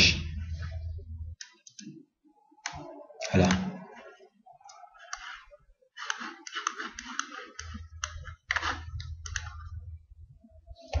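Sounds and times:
keyboard and mouse clicking: 0:01.4 - 0:02.0, 0:02.6 - 0:03.8, 0:04.6 - 0:05.4, 0:06.0 - 0:09.8.

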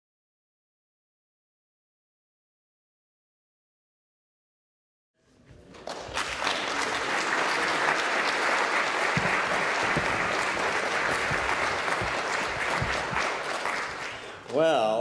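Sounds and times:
audience applauding: 0:05.8 - 0:14.8.

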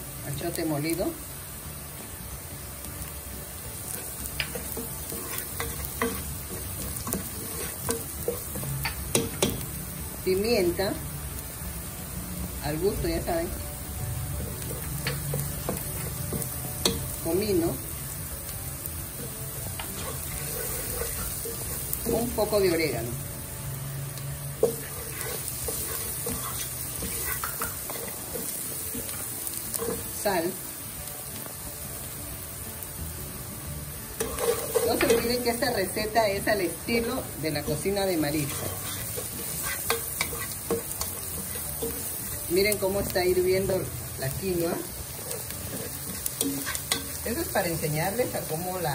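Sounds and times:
onion frying sizzle: 0:00.0 - 0:48.9
spoon scraping and tapping pan: 0:03.9 - 0:09.6, 0:34.2 - 0:35.3.

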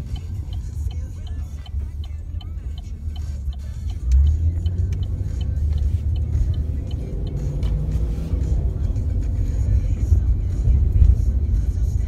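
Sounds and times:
car engine accelerating: 0:00.0 - 0:12.0
turn signal clicking: 0:00.0 - 0:12.0.

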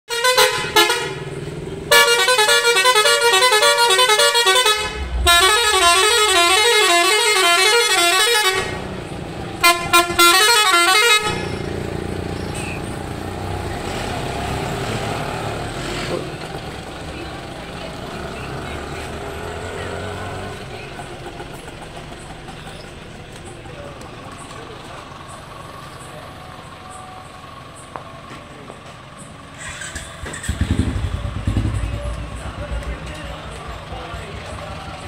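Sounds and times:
musical air horn: 0:00.1 - 0:01.3, 0:01.9 - 0:09.0, 0:09.6 - 0:11.6
vehicle running low: 0:00.2 - 0:35.0.

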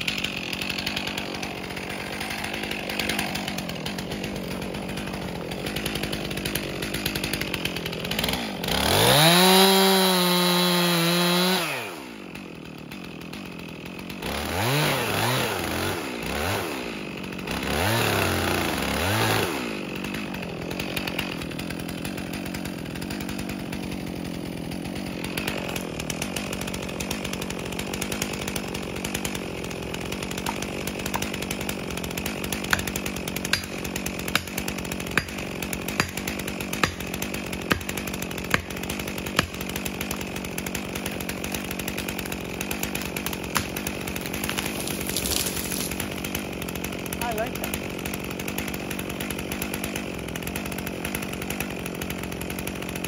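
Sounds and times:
chainsaw revving and idling: 0:00.0 - 0:53.0.

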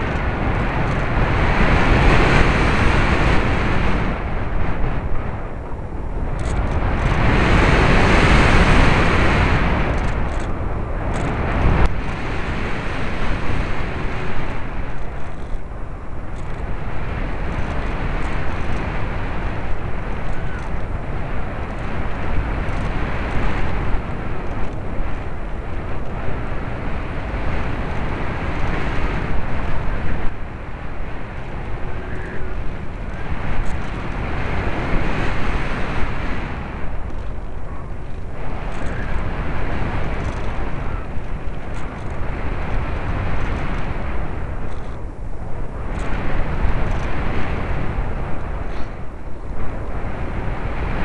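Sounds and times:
wind rushing over microphone: 0:00.0 - 0:51.0.

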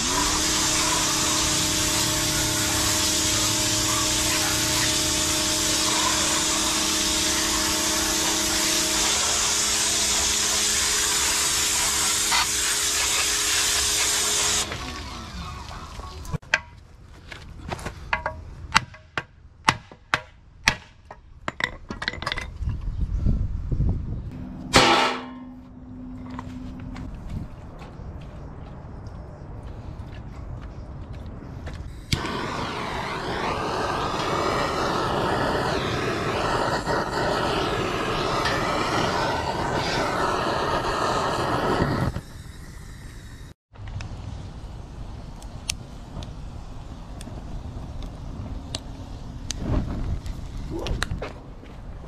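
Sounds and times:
pressure washer spraying: 0:00.0 - 0:15.9, 0:32.0 - 0:43.4.

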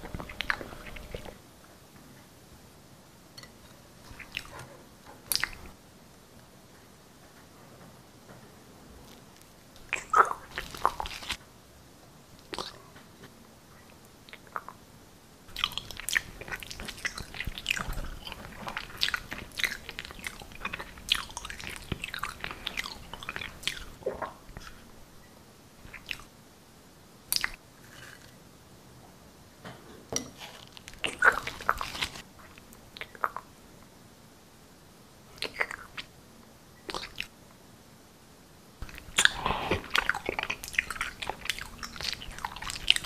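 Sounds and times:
wet chewing and mouth smacking: 0:00.0 - 0:01.4, 0:04.0 - 0:04.6, 0:05.3 - 0:05.7, 0:09.8 - 0:11.4, 0:12.4 - 0:12.8, 0:15.5 - 0:24.8, 0:25.8 - 0:26.3, 0:27.3 - 0:27.6, 0:30.6 - 0:33.5, 0:35.4 - 0:36.1, 0:36.8 - 0:37.4, 0:38.8 - 0:43.0.

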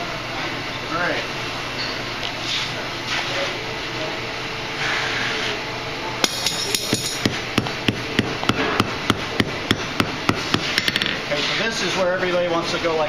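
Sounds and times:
hammer striking steel on anvil: 0:06.2 - 0:11.1.

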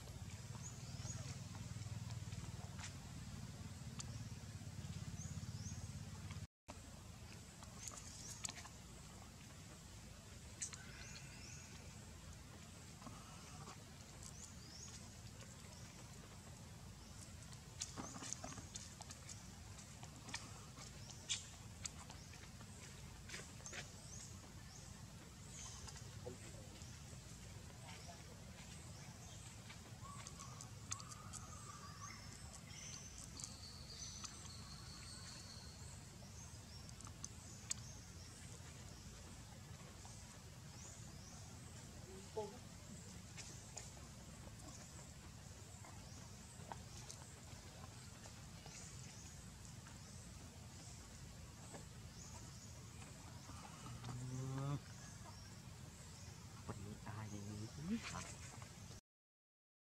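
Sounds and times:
low steady rumble: 0:00.0 - 0:58.9.

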